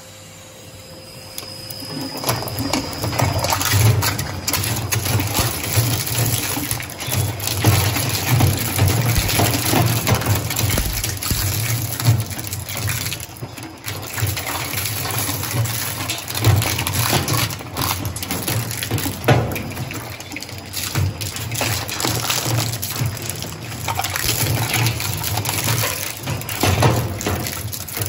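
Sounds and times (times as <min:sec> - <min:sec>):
low machine hum: 0:00.0 - 0:20.2
shredder crunching plastic: 0:01.9 - 0:28.0
sharp plastic cracks: 0:04.6 - 0:13.2, 0:23.9 - 0:28.0.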